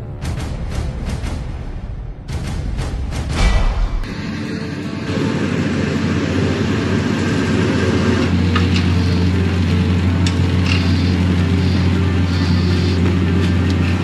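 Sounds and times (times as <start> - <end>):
locomotive engine idling: 3.9 - 14.0.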